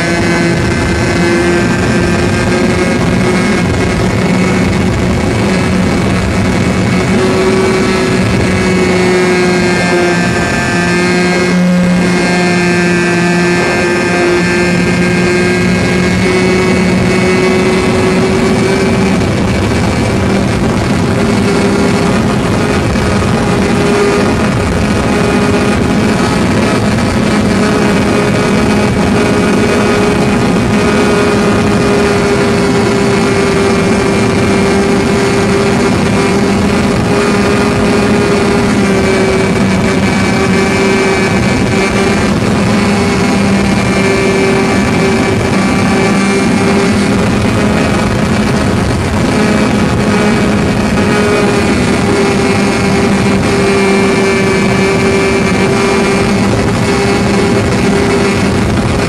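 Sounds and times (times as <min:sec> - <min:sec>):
model plane engine running: 0:00.0 - 0:12.5
rush of air: 0:00.0 - 0:59.0.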